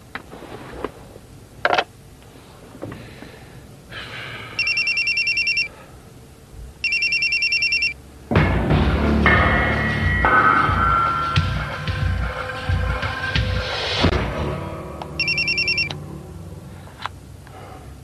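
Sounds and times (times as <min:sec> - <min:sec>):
mobile phone ringing: 0:04.6 - 0:05.7, 0:06.8 - 0:08.0, 0:15.2 - 0:16.0.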